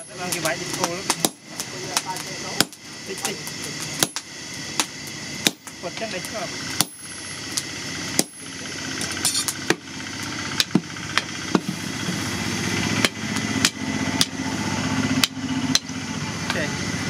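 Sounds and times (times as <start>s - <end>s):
motor hum: 0.0s - 17.0s
sharp metallic knocks: 6.8s - 7.2s, 8.2s - 8.5s, 13.0s - 14.4s.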